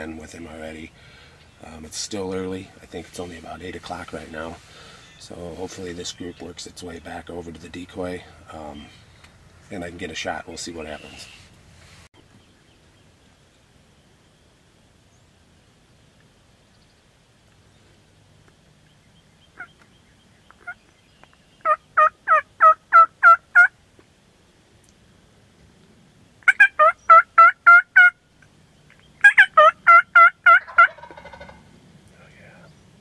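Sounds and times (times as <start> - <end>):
turkey yelping: 21.6 - 23.7, 26.4 - 28.2, 29.2 - 31.7.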